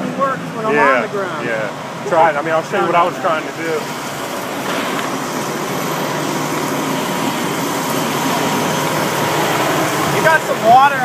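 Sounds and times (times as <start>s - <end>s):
truck engine running: 0.0s - 11.0s.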